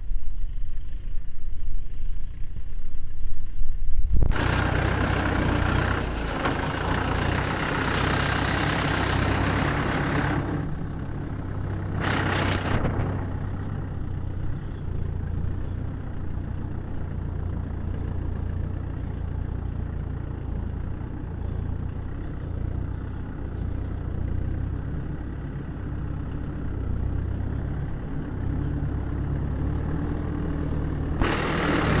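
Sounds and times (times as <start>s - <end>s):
tractor diesel engine running: 0.0s - 32.0s
loud hiss: 31.2s - 32.0s.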